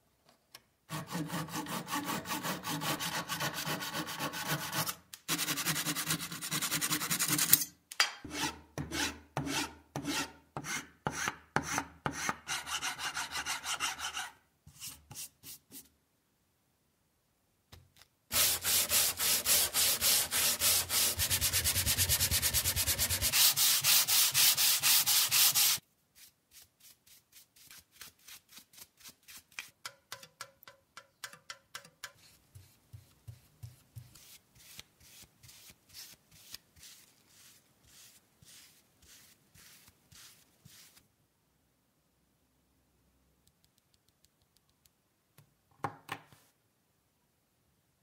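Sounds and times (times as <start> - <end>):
sandpaper sanding wood: 0.9 - 7.5, 18.3 - 25.8
paintbrush on wood: 32.1 - 41.0.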